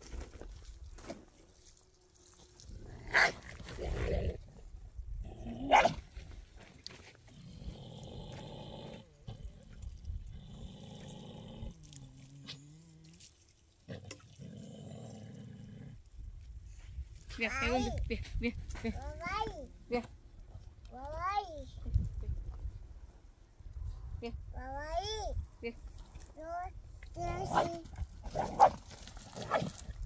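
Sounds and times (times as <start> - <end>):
dog growling: 7.3 - 13.2.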